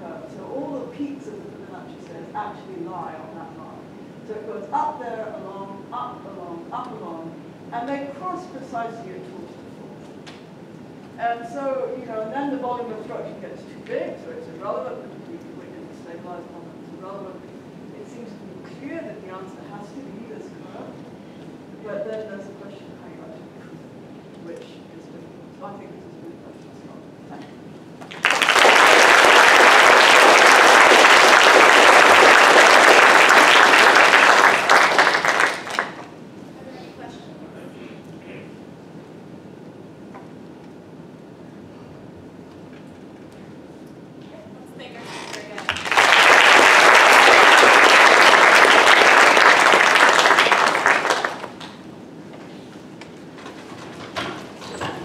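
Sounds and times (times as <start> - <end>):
audience applauding: 28.0 - 36.1, 45.3 - 51.8.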